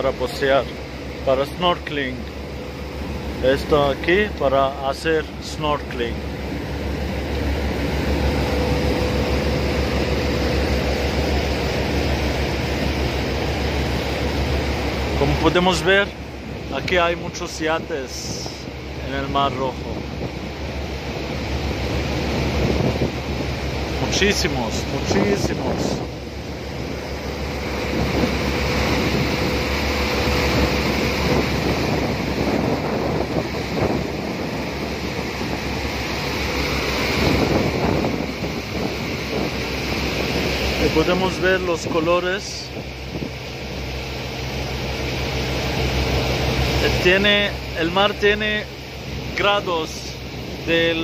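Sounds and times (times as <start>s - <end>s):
boat engine rumble: 0.0s - 51.0s
water noise: 0.0s - 51.0s
wind: 0.0s - 51.0s.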